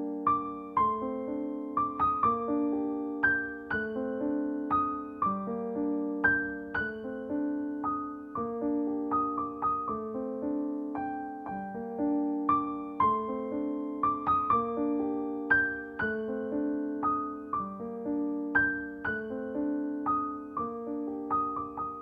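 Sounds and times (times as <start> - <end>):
gentle piano melody: 0.0 - 22.0.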